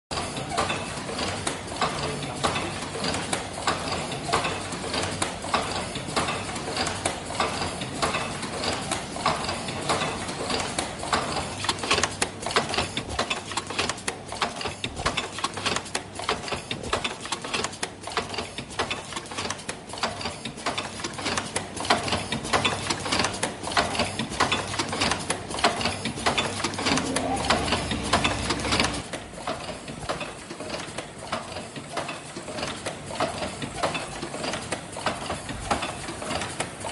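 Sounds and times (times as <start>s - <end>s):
production line clattering: 0.1s - 36.9s
low hum: 27.0s - 28.9s.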